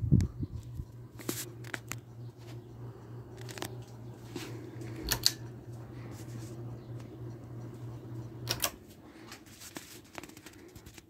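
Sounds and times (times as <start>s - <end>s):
ceiling fan motor humming: 0.0s - 11.0s
sharp clicks and crackles: 0.2s - 2.1s, 3.3s - 4.0s, 9.7s - 11.0s.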